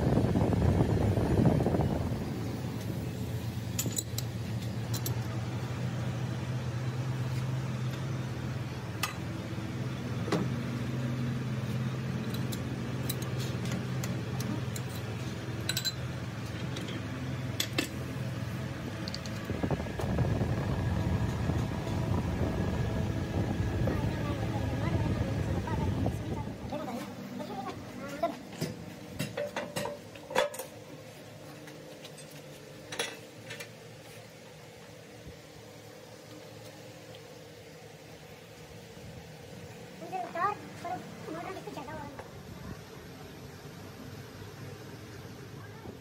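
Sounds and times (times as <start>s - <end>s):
metal parts clinking: 3.7s - 4.3s
machine humming: 13.9s - 29.1s.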